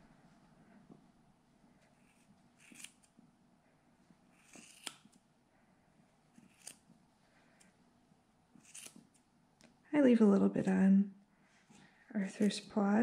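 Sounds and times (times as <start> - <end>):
scissors snipping: 2.1 - 3.1, 4.4 - 5.2, 6.4 - 6.8, 8.6 - 9.2.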